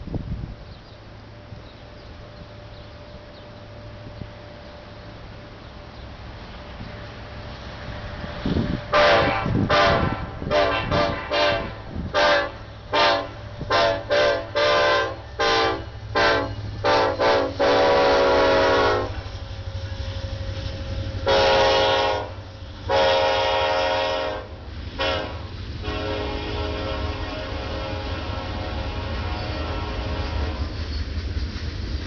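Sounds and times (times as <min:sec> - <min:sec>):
train rumbling past: 0:00.0 - 0:32.0
locomotive horn blasts: 0:08.9 - 0:19.3, 0:21.2 - 0:30.7.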